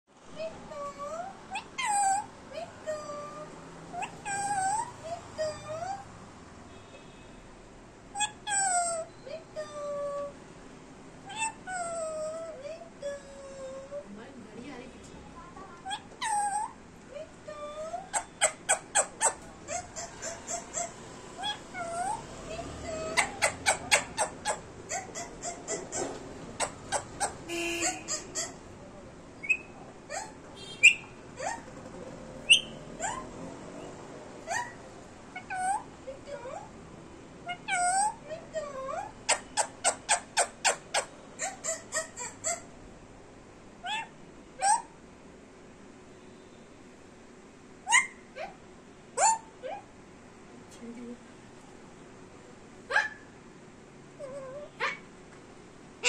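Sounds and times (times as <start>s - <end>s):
parakeet calling and chirping: 3.9s - 6.1s, 11.3s - 12.4s, 15.8s - 28.8s, 29.4s - 36.7s, 37.4s - 42.8s, 47.9s - 48.6s.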